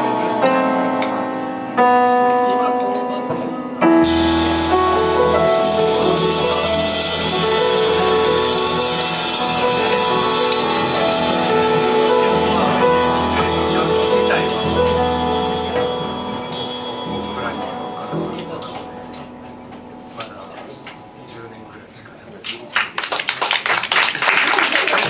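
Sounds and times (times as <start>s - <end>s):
grand piano: 0.0s - 22.6s
drum kit cymbal wash: 3.9s - 20.1s
upright double bass: 4.0s - 19.5s.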